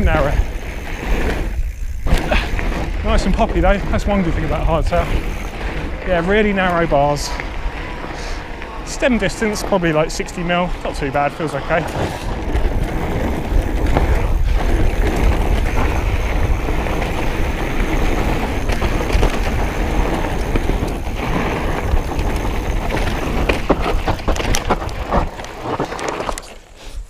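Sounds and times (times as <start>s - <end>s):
wind buffeting microphone: 0.0s - 26.4s
tyres on dirt trail: 0.0s - 27.0s
bike knocks and clatter: 11.7s - 26.6s.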